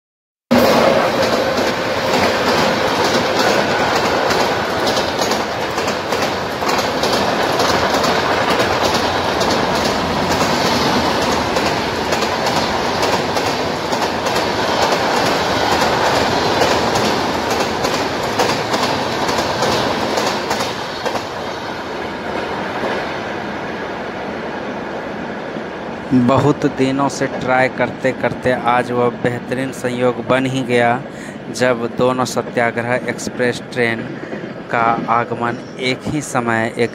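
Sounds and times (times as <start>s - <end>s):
train wheels clattering over rail joints: 0.6s - 21.7s.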